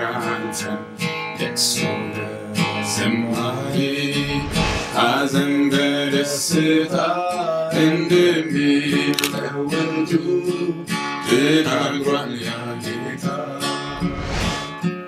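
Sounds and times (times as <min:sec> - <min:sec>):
man singing: 0:00.0 - 0:13.9
strummed acoustic guitar: 0:00.0 - 0:15.0.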